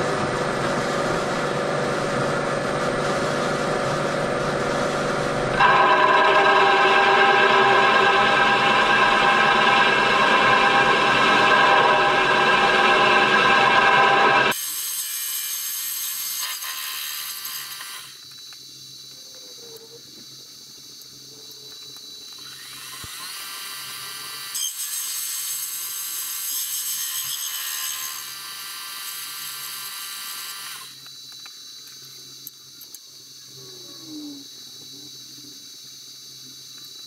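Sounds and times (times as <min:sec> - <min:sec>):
milling machine motor whine: 0:00.0 - 0:14.8.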